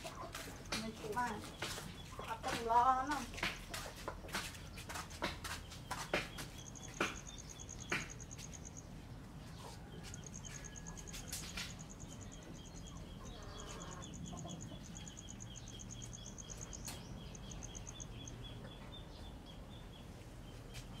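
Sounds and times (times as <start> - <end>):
high rapid chirping trills: 4.8 - 18.6
lower chirps: 6.4 - 9.1, 9.9 - 19.0.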